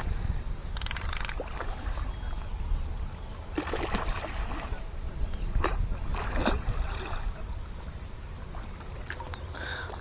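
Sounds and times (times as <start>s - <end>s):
wind rumble on microphone: 0.0s - 9.4s
water splashes: 1.2s - 2.5s, 3.4s - 10.0s
small waves lapping against rocks: 3.5s - 10.0s.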